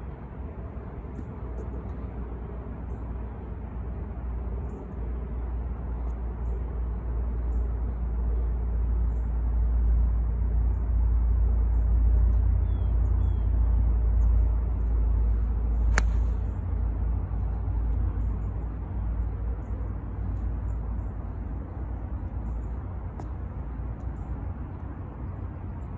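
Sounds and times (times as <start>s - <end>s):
golf club striking ball: 15.9s - 16.6s.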